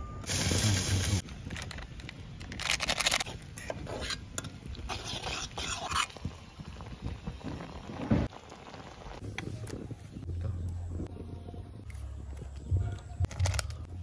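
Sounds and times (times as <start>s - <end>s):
metal spoon scraping in steel pot: 3.6s - 4.3s, 4.9s - 6.1s.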